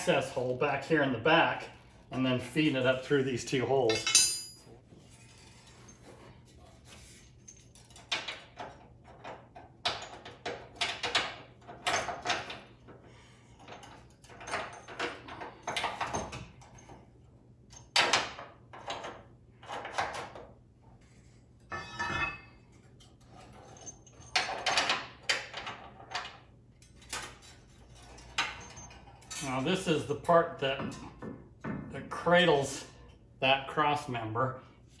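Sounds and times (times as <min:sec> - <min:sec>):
bolts scraping and clinking in metal: 0:02.7 - 0:17.1, 0:21.6 - 0:31.2.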